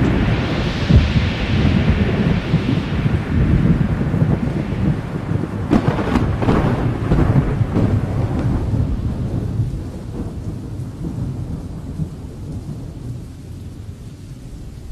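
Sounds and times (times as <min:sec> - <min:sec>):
steady rain: 0:00.0 - 0:14.9
thunder rumble: 0:00.0 - 0:14.9.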